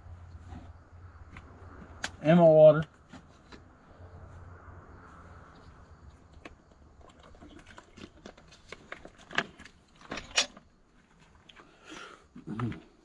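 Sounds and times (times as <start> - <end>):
handling clicks and knocks: 6.3 - 11.6.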